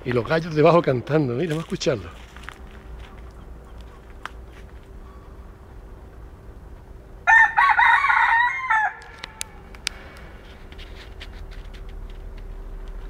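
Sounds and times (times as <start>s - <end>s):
rooster crowing: 7.2s - 9.7s
sharp clicks: 9.0s - 10.3s.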